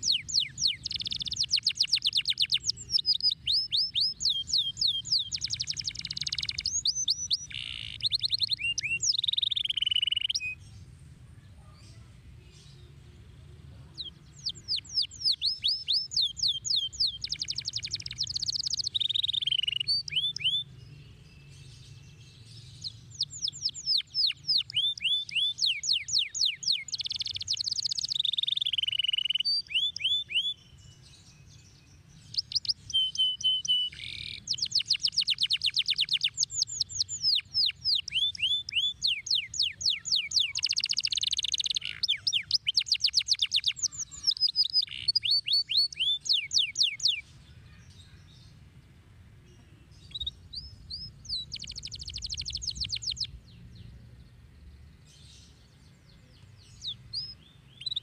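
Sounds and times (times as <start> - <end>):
canary singing trills: 0.0 - 10.8, 13.8 - 58.0.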